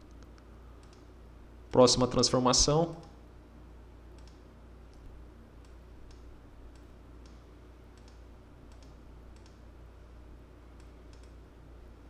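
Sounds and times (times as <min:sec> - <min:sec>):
computer mouse clicks: 0:00.0 - 0:01.1, 0:04.2 - 0:09.6, 0:10.8 - 0:11.4.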